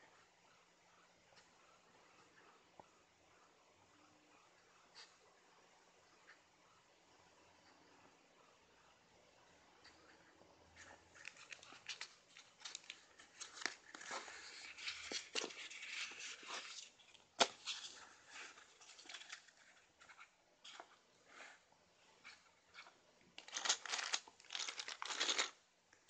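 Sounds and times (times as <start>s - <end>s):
plastic sheets crinkling: 10.8s - 20.9s, 22.7s - 25.6s.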